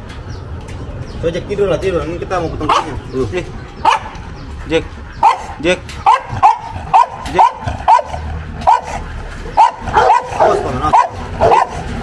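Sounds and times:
dog barking: 0:02.7 - 0:03.0, 0:03.8 - 0:04.2, 0:05.2 - 0:11.9.

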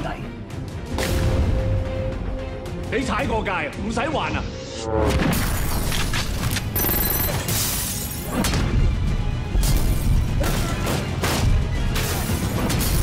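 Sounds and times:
action trailer music: 0:00.0 - 0:13.0.

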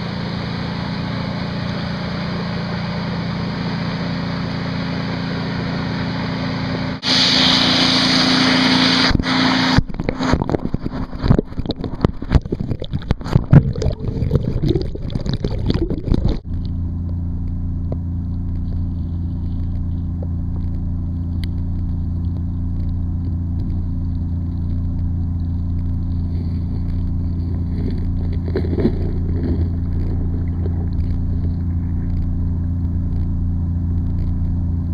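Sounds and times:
muffled underwater hum: 0:00.0 - 0:34.9
loud hiss: 0:07.0 - 0:09.7
water splashes and bumps: 0:09.1 - 0:16.8, 0:18.4 - 0:33.3.

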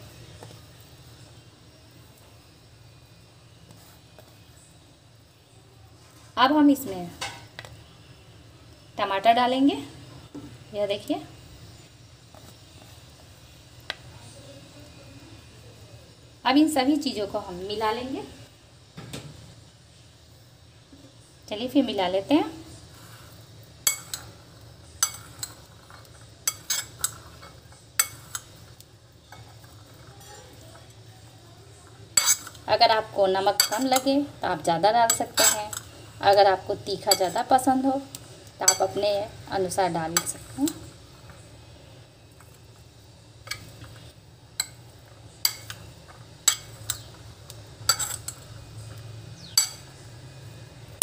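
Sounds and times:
soft shuffle of food mix: 0:00.0 - 0:51.0
metal spoon clinking on bowl: 0:23.9 - 0:24.3, 0:26.4 - 0:28.5, 0:32.2 - 0:32.6, 0:45.4 - 0:45.8, 0:46.4 - 0:47.1, 0:47.9 - 0:48.4, 0:49.5 - 0:49.8
spoon scraping bowl: 0:25.0 - 0:30.8, 0:31.8 - 0:32.7, 0:47.8 - 0:48.9.

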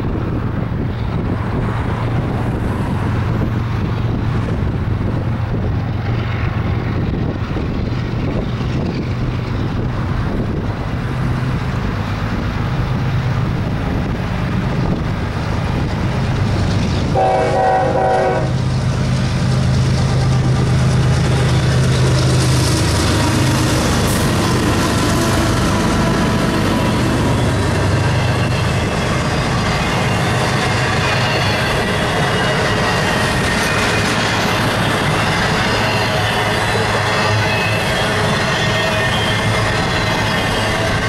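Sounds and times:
diesel locomotive drone: 0:00.0 - 0:41.0
train wheel and rail noise: 0:00.0 - 0:41.0
train air horn blast: 0:17.1 - 0:18.6.

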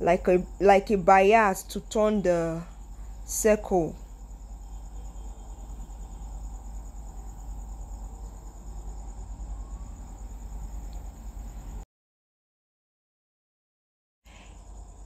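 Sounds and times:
crickets chirping: 0:00.0 - 0:11.8, 0:14.3 - 0:15.0.

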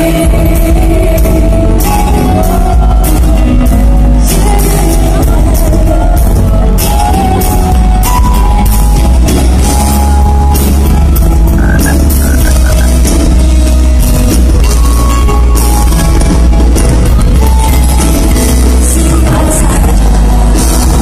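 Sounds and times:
person singing: 0:00.0 - 0:08.8, 0:17.4 - 0:21.0
live band playing: 0:00.0 - 0:21.0.

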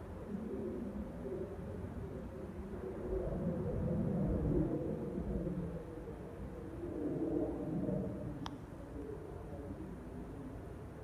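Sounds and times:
jet airliner rumbling overhead: 0:00.0 - 0:08.4.

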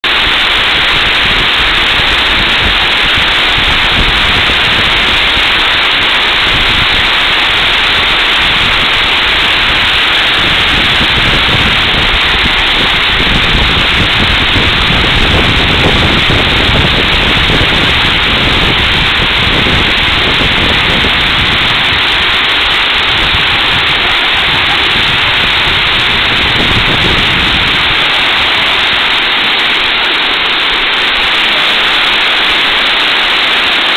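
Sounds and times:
water pouring over dam: 0:00.0 - 0:33.9.

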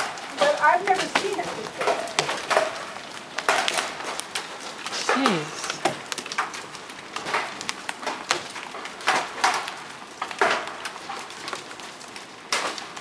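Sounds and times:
large hail striking hard surfaces: 0:00.0 - 0:13.0.

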